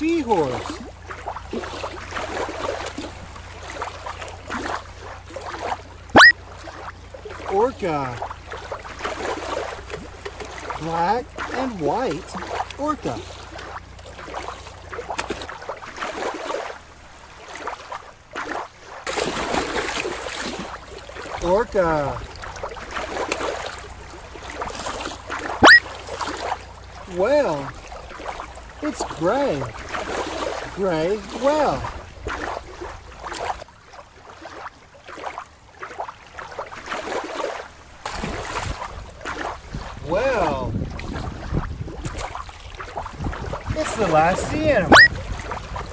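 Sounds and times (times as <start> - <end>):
water splashing and sloshing: 0.0 - 45.9
wind rumbling on microphone: 38.1 - 45.9.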